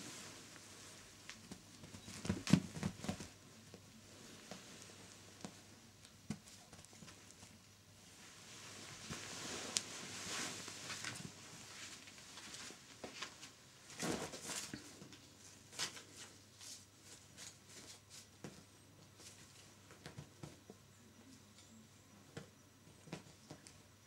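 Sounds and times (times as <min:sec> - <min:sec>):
kittens scratching on fabric: 0:01.3 - 0:07.6, 0:14.0 - 0:20.6.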